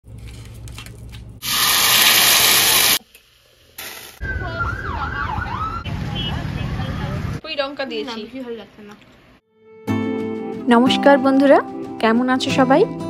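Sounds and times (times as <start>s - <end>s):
emergency vehicle siren: 4.2s - 7.4s.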